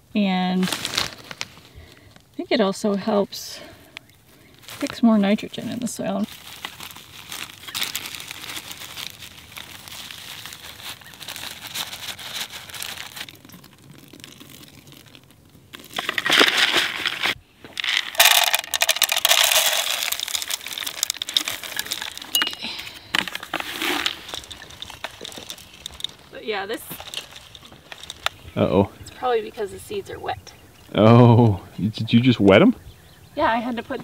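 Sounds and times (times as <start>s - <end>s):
paper packet crinkling: 0.6s - 1.7s, 6.2s - 28.4s
water pouring into bucket: 16.0s - 22.4s.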